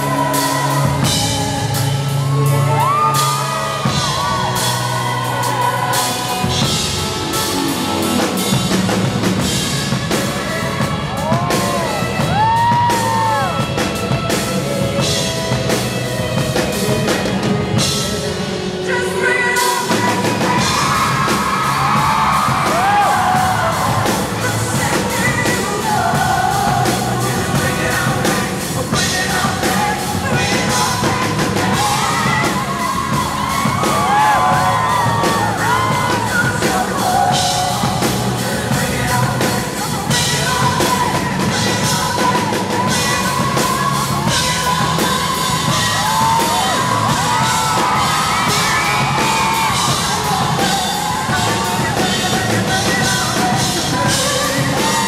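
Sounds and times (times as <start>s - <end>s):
steady drum beat: 0.0s - 18.9s, 19.6s - 55.0s
full band playing: 0.0s - 55.0s
man singing into microphone: 22.6s - 33.1s, 33.8s - 55.0s.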